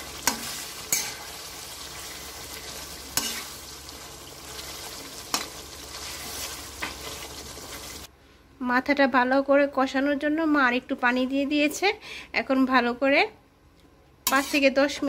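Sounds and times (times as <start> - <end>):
fish frying in paste sizzling: 0.0 - 8.1.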